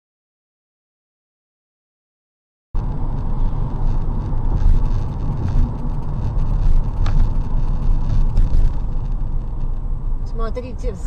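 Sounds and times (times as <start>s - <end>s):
car engine and road noise: 2.8s - 11.0s.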